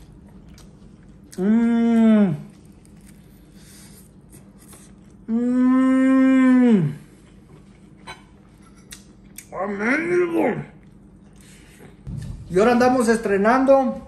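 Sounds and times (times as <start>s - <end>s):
man humming: 1.4s - 2.5s, 5.3s - 7.0s.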